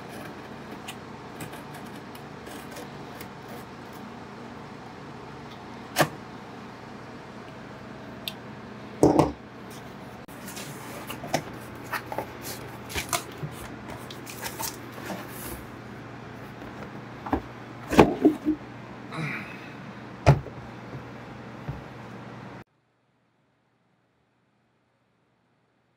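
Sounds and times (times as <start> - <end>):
cardboard rustling and scraping: 0.0 - 4.1, 9.7 - 15.8.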